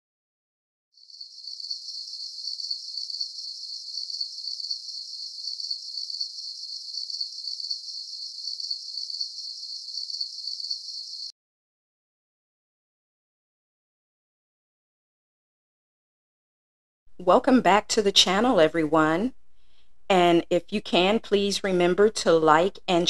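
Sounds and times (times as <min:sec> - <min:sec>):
insects chirring: 0:01.0 - 0:11.3.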